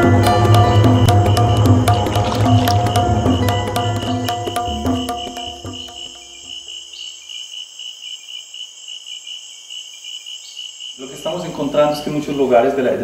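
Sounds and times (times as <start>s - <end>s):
background music: 0.0s - 6.2s
insect chorus trilling: 0.0s - 13.0s.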